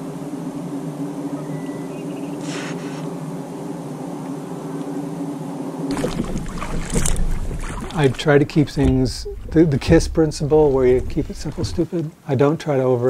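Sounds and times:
water sloshing around a boat: 5.9 - 12.0.

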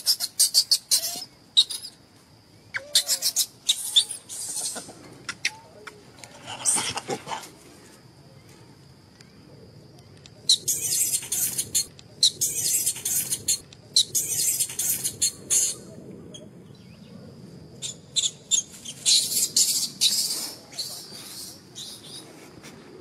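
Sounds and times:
baby monkey squealing: 0.0 - 1.9, 2.7 - 4.8, 10.5 - 15.8.

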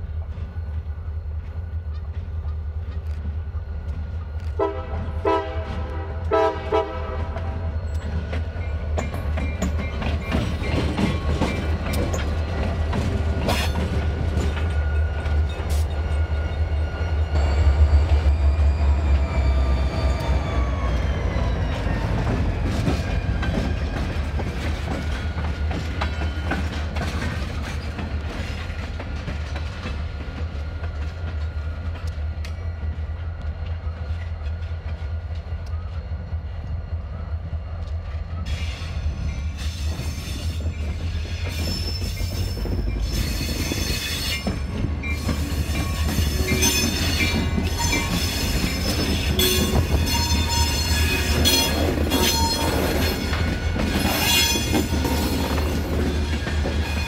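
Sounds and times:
locomotive horn blasts: 4.6 - 7.7
wheels clicking over rail joints: 7.2 - 16.5, 21.7 - 32.6.

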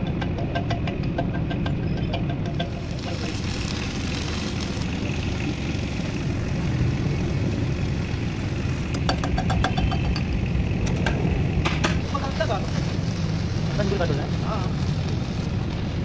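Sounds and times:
machine droning: 1.4 - 16.0.

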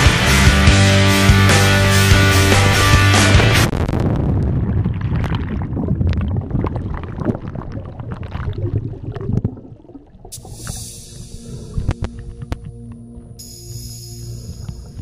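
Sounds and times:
rock music: 0.0 - 3.7
water rushing underwater: 3.6 - 12.6.

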